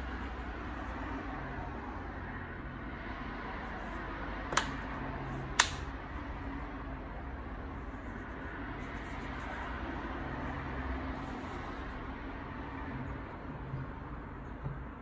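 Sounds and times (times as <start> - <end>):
laptop panel snapping into clips: 4.5 - 4.8, 5.6 - 5.8.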